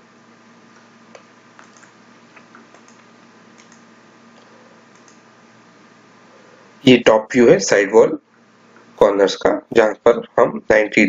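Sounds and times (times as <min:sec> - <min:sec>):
faint clicks: 0:00.8 - 0:05.2.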